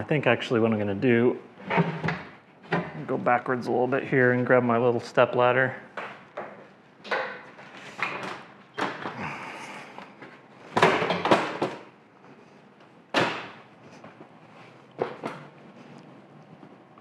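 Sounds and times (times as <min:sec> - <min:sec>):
hard objects knocking and clunking: 0:06.0 - 0:11.9.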